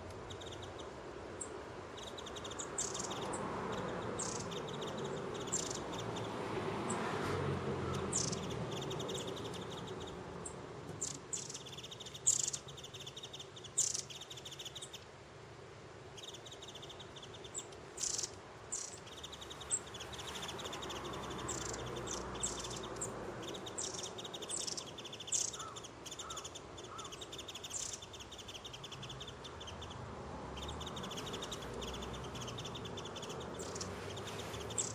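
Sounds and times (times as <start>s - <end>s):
rapid buzzing bird trills: 0.0s - 6.4s, 7.8s - 15.1s, 16.1s - 34.9s
high thin bird calls: 16.2s - 20.9s, 30.9s - 34.9s.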